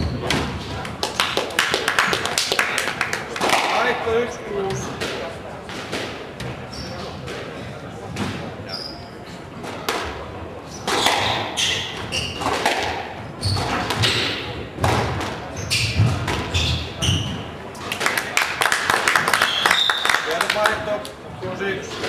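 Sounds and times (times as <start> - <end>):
shoes squeaking on wooden floor: 6.4 - 7.3, 8.6 - 9.4, 10.7 - 14.3, 15.5 - 17.6
squash ball cracking off racquets: 10.8 - 16.5.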